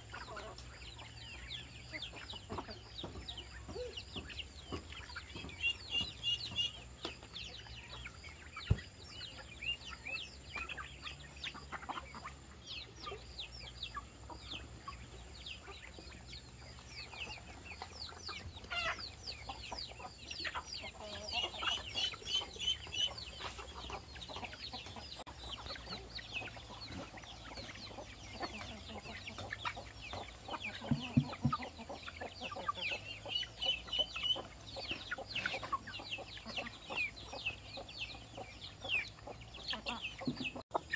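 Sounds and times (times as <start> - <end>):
chickens chirping and trilling: 0.0 - 40.9
chickens clucking: 0.0 - 40.9.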